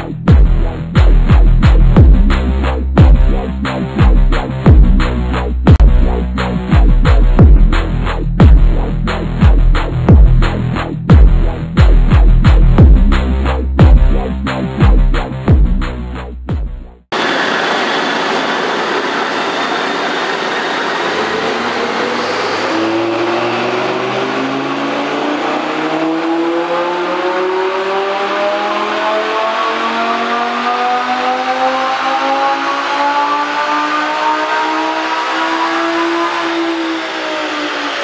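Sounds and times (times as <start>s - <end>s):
sports car engine revving at full throttle: 17.2s - 38.0s.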